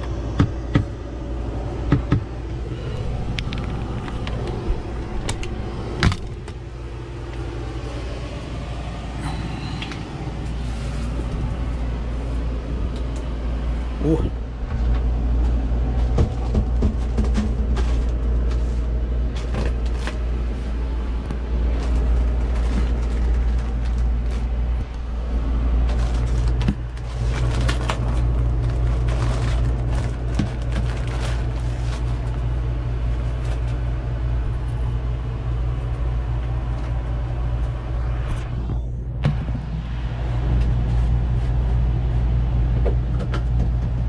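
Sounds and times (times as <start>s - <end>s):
boat engine droning: 0.0s - 44.0s
plastic wrapper crinkling and tearing: 21.6s - 24.7s, 25.8s - 32.5s.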